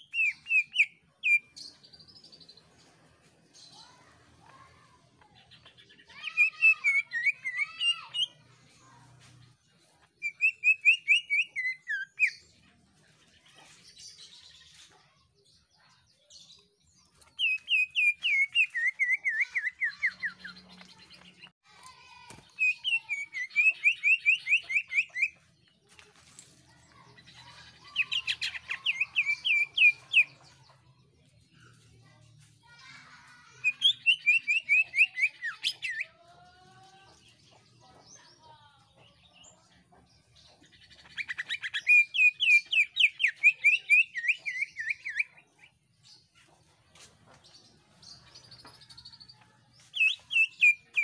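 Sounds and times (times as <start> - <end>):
bird singing shrill song: 0.0 - 2.5, 5.4 - 8.4, 10.2 - 12.5, 15.7 - 21.5, 22.1 - 25.7, 27.2 - 30.6, 32.8 - 36.2, 40.3 - 46.3, 47.6 - 51.0.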